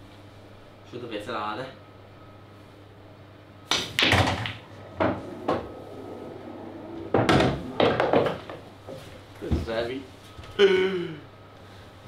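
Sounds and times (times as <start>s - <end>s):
cue striking cue ball: 3.7s - 9.0s
pool balls clacking and knocking: 3.7s - 9.2s.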